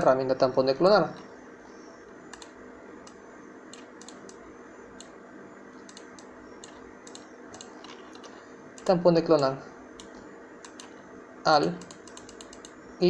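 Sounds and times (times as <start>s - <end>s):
steady low hum: 0.0s - 13.0s
mouse and keyboard clicks: 2.3s - 4.4s, 5.8s - 11.0s, 11.6s - 12.8s.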